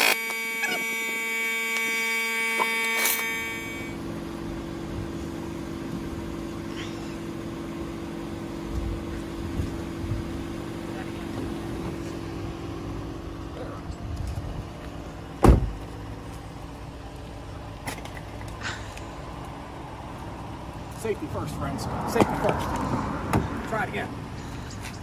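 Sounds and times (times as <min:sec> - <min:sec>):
steady ringing tone: 0:00.0 - 0:04.0
car engine idling: 0:03.2 - 0:25.0.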